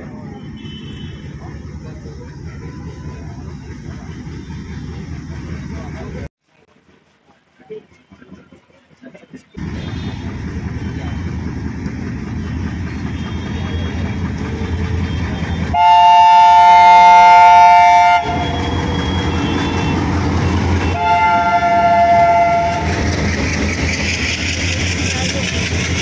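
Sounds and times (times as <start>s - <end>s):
diesel locomotive engine rumble: 0.0s - 26.0s
train wheels clattering on rails: 7.6s - 26.0s
locomotive horn blast: 9.6s - 10.9s, 13.0s - 23.2s.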